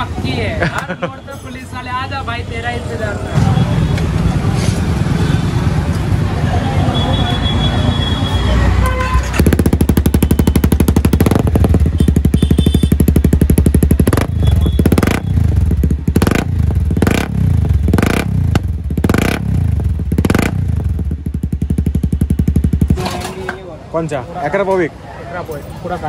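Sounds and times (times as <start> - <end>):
motorcycle engine idling and revving: 2.2 - 7.0, 9.1 - 24.8.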